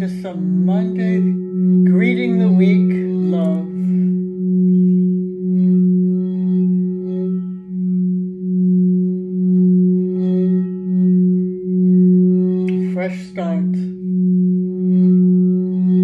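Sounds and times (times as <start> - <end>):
singing bowl higher tone: 0.0 - 16.0
singing bowl low tone: 0.0 - 16.0.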